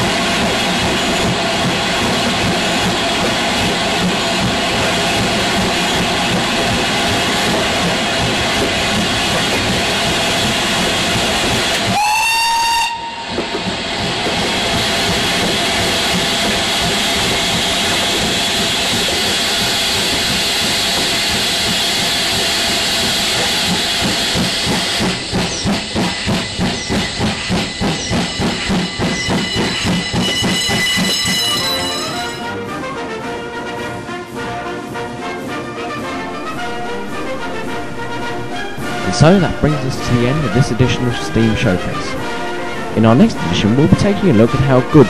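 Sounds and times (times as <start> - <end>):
locomotive exhaust chuffs: 0.0 - 32.5
steam whistle rising in pitch: 11.8 - 13.4.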